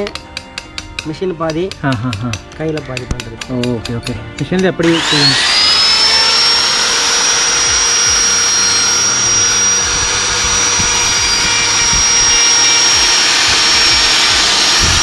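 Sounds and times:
power tool motor whine: 0:04.8 - 0:15.0.

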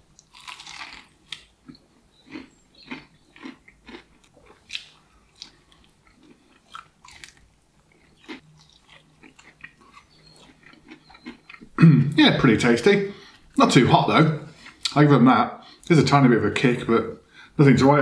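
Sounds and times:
crispy bite: 0:00.1 - 0:11.6
crunchy chewing of fried chicken: 0:00.1 - 0:11.8, 0:14.5 - 0:15.0.

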